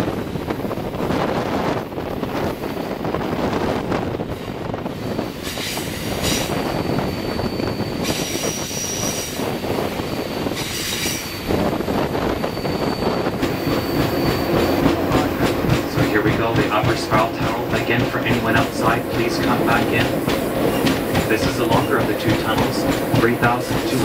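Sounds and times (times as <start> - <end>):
train cars rumbling: 0.0 - 24.0
wheel flanges squealing: 5.4 - 24.0.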